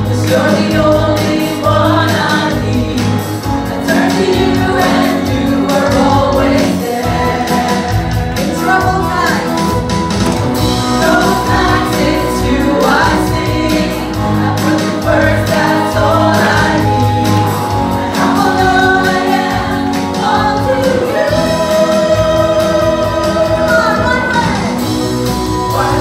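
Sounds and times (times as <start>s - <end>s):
backing singers: 0.0s - 26.0s
band with guitars and keyboard: 0.0s - 26.0s
woman singing: 14.6s - 24.8s, 25.7s - 26.0s.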